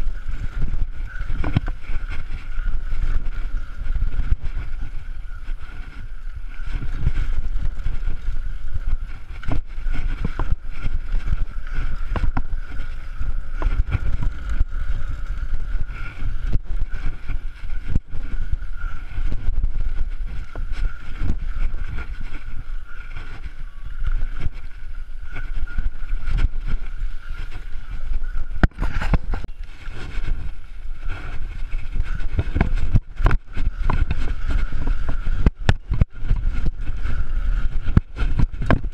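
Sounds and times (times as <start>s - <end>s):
wind buffeting microphone: 0.0s - 38.9s
bike knocks and rattles: 6.6s - 18.4s.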